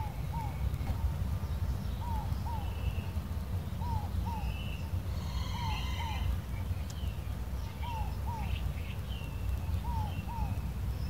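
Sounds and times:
dove cooing: 0.0 - 1.2, 5.1 - 6.3
steady low rumble: 0.0 - 11.0
faint bird chirps: 3.8 - 11.0.

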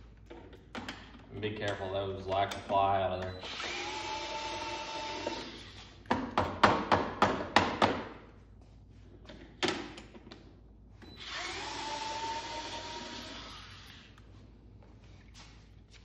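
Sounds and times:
electric screwdriver whining: 3.4 - 6.0, 11.2 - 14.2.

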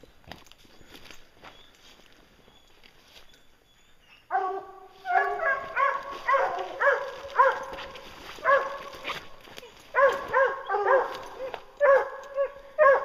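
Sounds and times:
hounds barking: 4.2 - 13.0
hound bawling: 4.3 - 7.8.

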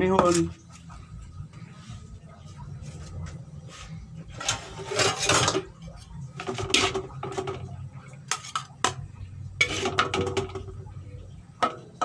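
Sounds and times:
metal spatula scraping a wok: 3.8 - 7.6, 8.2 - 8.9, 9.5 - 10.7.

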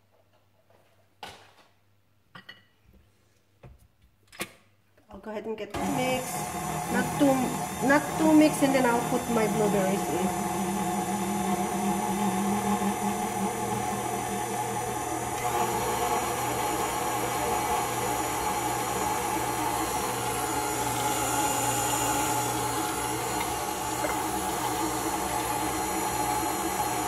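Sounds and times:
stand mixer motor humming and whining: 5.8 - 27.0.

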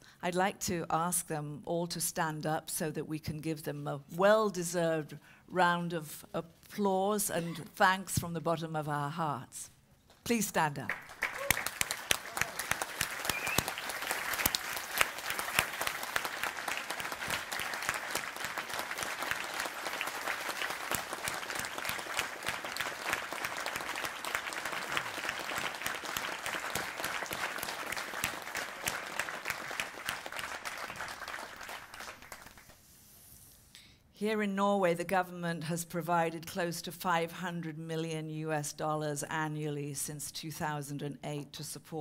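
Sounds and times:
audience applauding: 10.9 - 32.8.

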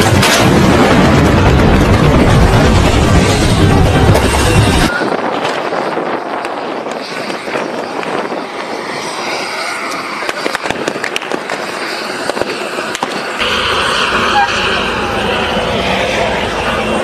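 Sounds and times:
sharp cracks: 0.0 - 5.7, 9.9 - 13.5
crowd rushing din: 0.0 - 17.0.

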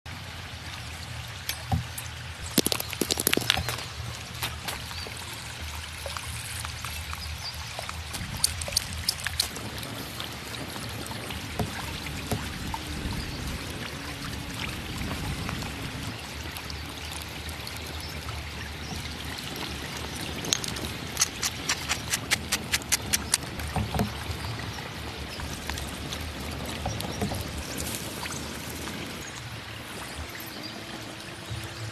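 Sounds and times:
river water flowing: 0.1 - 31.9
sharp clicks: 20.5 - 23.5.

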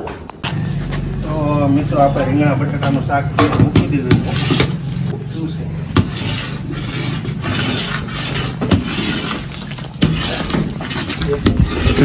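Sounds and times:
liquid sloshing in metal pot: 6.0 - 12.0.

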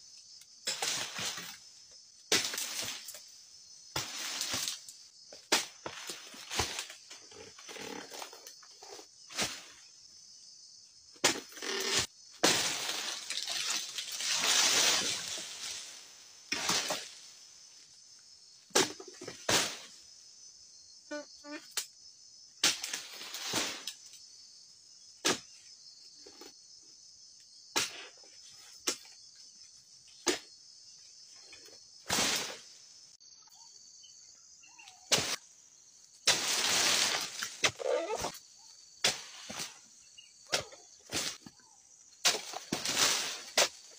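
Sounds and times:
high insect drone: 0.0 - 43.9
tool chopping palm stalks: 2.3 - 3.1, 5.4 - 7.0, 11.2 - 15.4, 18.7 - 19.8, 25.2 - 25.5, 36.2 - 38.3, 42.2 - 43.9
rustle of falling fronds: 3.9 - 5.0, 11.8 - 17.9, 36.1 - 37.8, 42.2 - 43.9.

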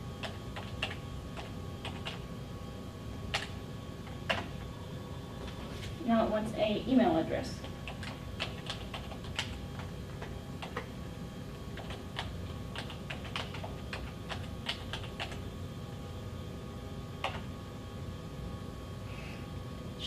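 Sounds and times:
steady low hum: 0.0 - 20.0
computer keyboard typing: 0.2 - 2.2, 3.3 - 3.6, 7.6 - 10.9, 11.7 - 15.4, 17.2 - 17.5.

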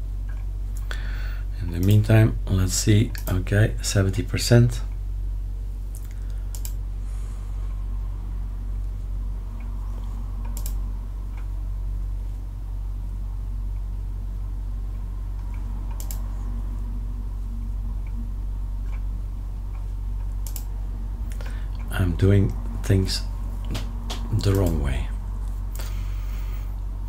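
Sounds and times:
steady low hum: 0.0 - 27.0
computer mouse clicks: 5.9 - 6.8, 9.6 - 11.5, 15.4 - 16.3, 19.7 - 20.7.

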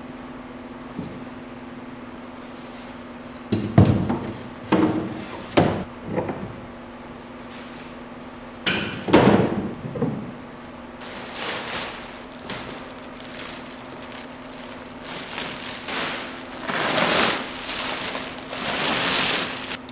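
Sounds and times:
steady low hum: 0.0 - 19.9
knocks and rustles of sheeting: 11.0 - 19.8.

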